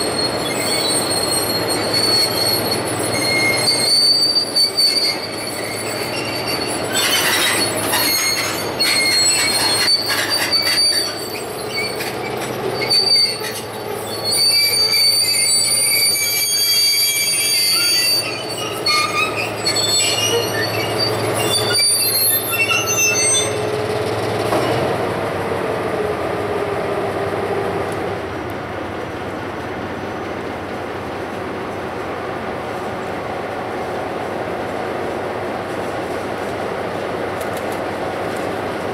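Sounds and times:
metal-on-metal squealing: 0:00.0 - 0:23.9.

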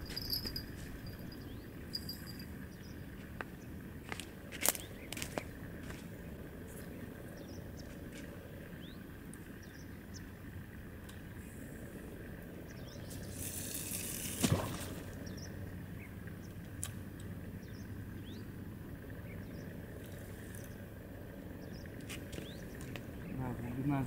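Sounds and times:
outdoor background noise: 0:00.0 - 0:24.0
splash in water: 0:13.9 - 0:15.1.

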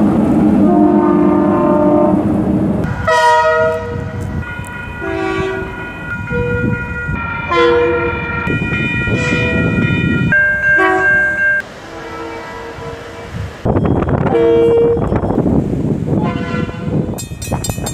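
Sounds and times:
passing train rumble: 0:00.0 - 0:17.9
locomotive horn blasts: 0:00.6 - 0:02.3, 0:03.0 - 0:04.2, 0:05.0 - 0:06.8, 0:07.5 - 0:09.8, 0:10.6 - 0:13.4, 0:14.1 - 0:15.2, 0:16.2 - 0:17.1.

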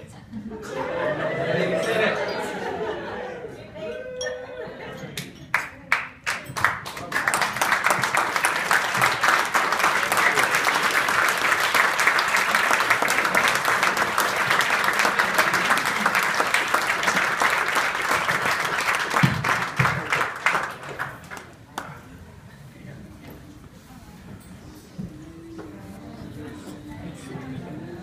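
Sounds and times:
crowd applauding: 0:05.5 - 0:22.0.

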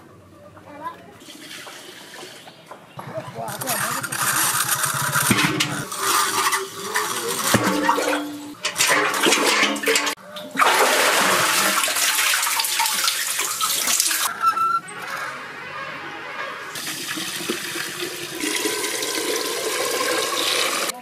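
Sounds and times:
metal bucket dipped in water: 0:01.2 - 0:14.4
water splashing in a well: 0:03.5 - 0:14.3, 0:16.7 - 0:21.0.

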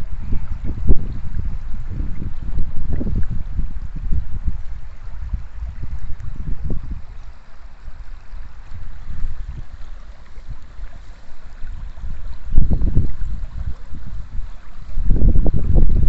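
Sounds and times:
river water flowing: 0:00.0 - 0:16.0
wind buffeting microphone: 0:00.0 - 0:16.0.

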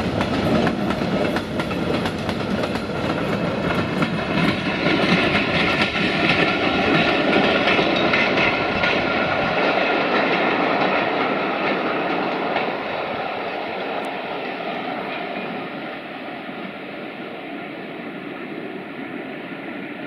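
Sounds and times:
train wheels clicking over rail joints: 0:00.0 - 0:14.1
train rumble: 0:00.0 - 0:20.0.

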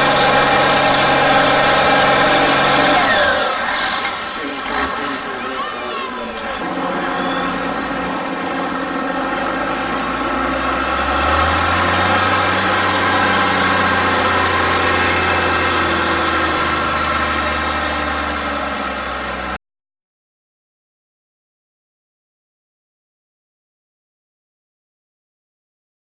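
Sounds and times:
thin high whine: 0:00.0 - 0:15.8
deep drone: 0:00.0 - 0:19.6
tractor diesel engine under load: 0:00.0 - 0:19.6.

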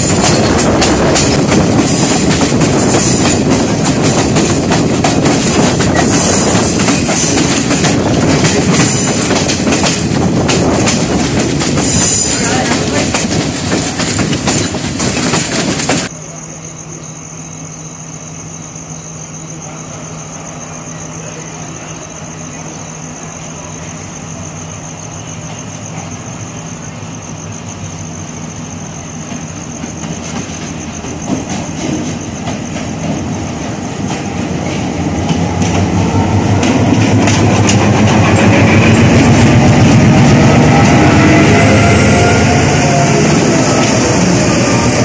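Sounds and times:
wheels clicking over rail joints: 0:00.0 - 0:16.1, 0:29.3 - 0:41.0
train running hum: 0:00.0 - 0:17.4, 0:18.0 - 0:45.0
train rising whine: 0:00.0 - 0:45.0.

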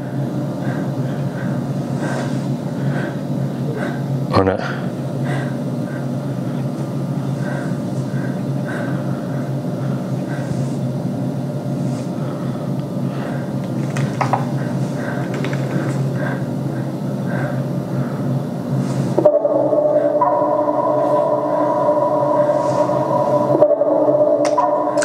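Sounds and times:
low droning soundtrack: 0:00.0 - 0:25.0.

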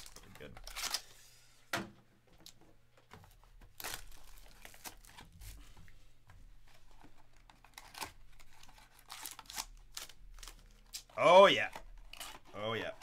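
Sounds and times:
plastic wrap crinkling and tearing: 0:00.0 - 0:01.2, 0:03.7 - 0:05.6, 0:06.9 - 0:13.0.

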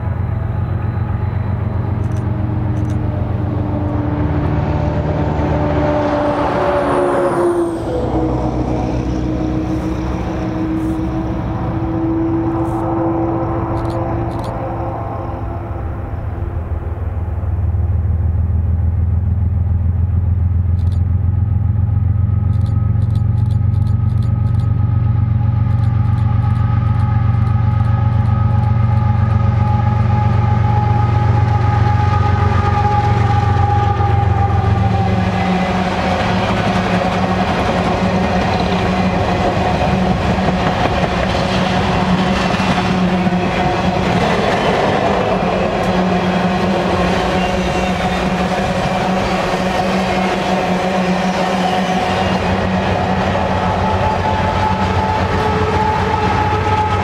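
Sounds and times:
diesel locomotive engine hum: 0:00.0 - 0:57.0
train wheels clattering on rails: 0:25.6 - 0:57.0.

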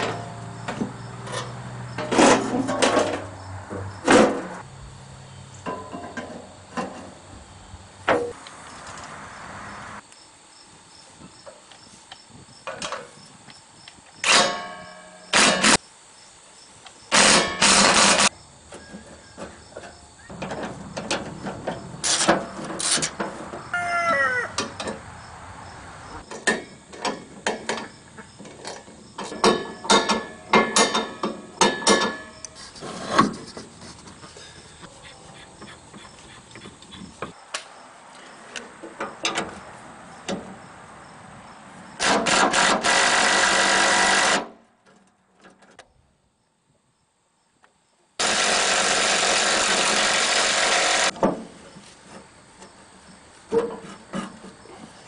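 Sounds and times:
metal clanks and knocks: 0:00.0 - 0:04.5, 0:05.6 - 0:07.2, 0:18.7 - 0:23.6, 0:26.2 - 0:32.4, 0:53.5 - 0:54.7.

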